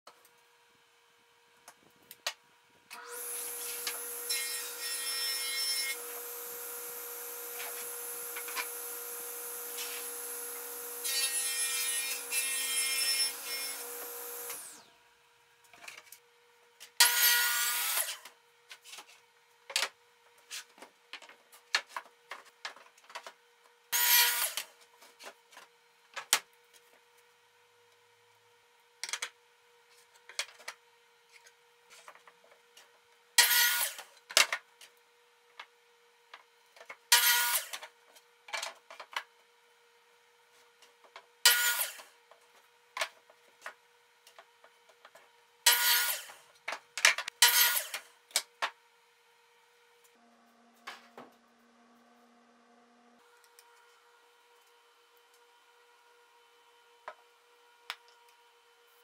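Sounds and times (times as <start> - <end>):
miter saw cuts: 3.0 - 14.9, 24.0 - 24.7, 37.1 - 37.8, 41.4 - 42.1, 45.7 - 46.4, 47.4 - 48.1
table saw cutting plywood: 3.0 - 14.9, 17.0 - 18.3, 24.0 - 24.7, 33.4 - 34.1, 37.1 - 37.9, 41.4 - 42.1, 45.6 - 46.5, 47.3 - 48.1.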